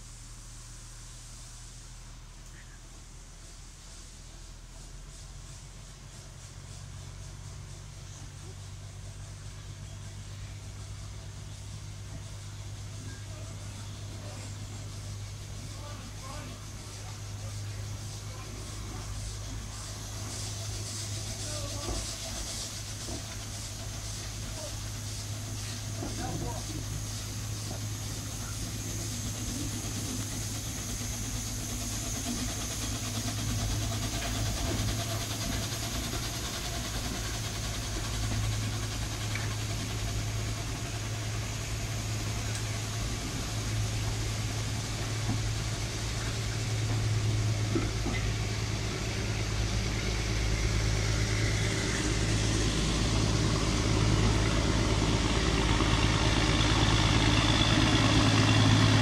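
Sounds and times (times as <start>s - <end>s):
diesel engine droning: 4.6s - 59.0s.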